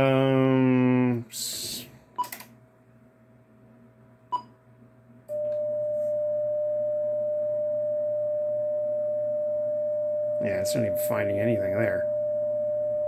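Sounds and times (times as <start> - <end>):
steady single tone: 5.3 - 13.0.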